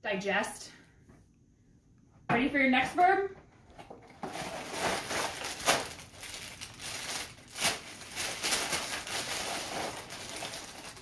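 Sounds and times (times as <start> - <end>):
packaging crinkling and rustling: 3.7 - 11.0.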